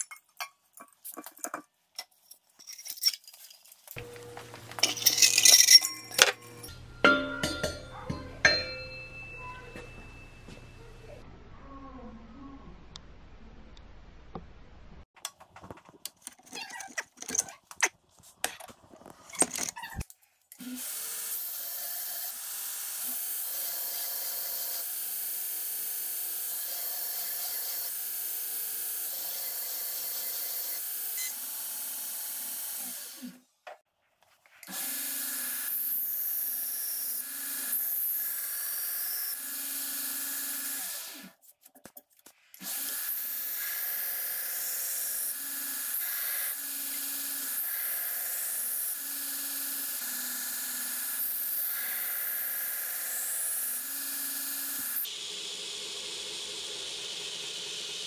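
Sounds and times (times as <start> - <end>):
belt grinder grinding knife blade: 3.9 - 6.8.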